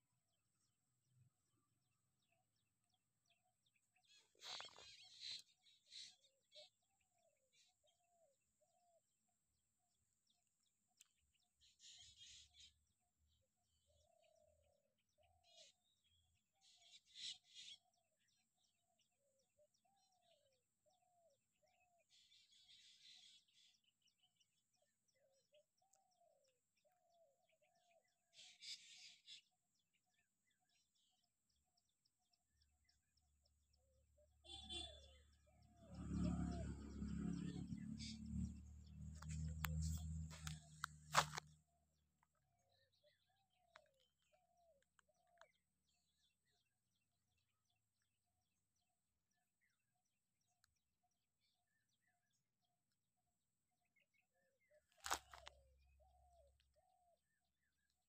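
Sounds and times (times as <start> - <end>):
bird calling: 34.2 - 35.4.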